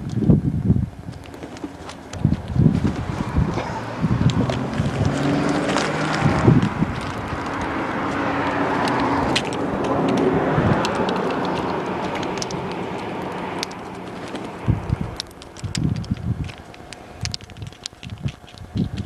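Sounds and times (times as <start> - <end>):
wind on microphone: 0.0 - 19.0
vehicle passing by: 2.6 - 15.2.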